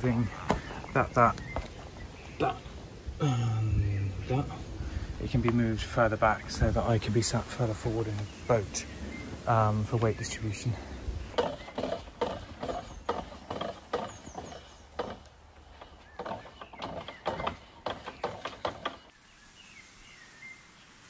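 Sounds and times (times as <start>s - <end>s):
birds chirping: 0.0s - 21.0s
chain drive clunking and clicking: 11.4s - 19.1s.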